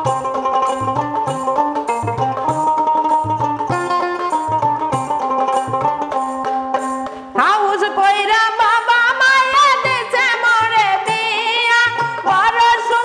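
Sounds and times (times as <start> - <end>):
plucked strings and hand drum: 0.0 - 13.0
woman singing: 7.4 - 13.0.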